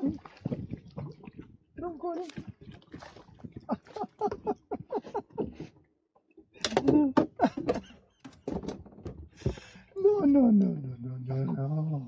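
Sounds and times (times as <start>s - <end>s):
man talking: 10.0s - 12.0s.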